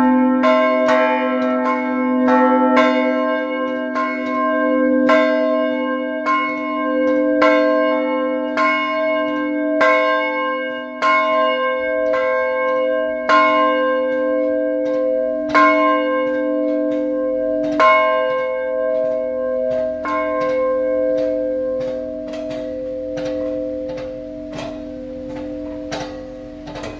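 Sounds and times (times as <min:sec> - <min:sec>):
church bell ringing: 0:00.0 - 0:26.9
steady low hum: 0:19.2 - 0:26.9.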